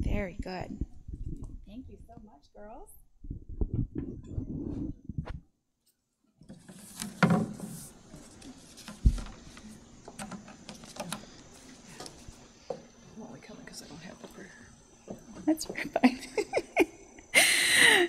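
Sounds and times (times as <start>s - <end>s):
microphone handling noise: 0.0s - 2.3s, 3.2s - 5.6s.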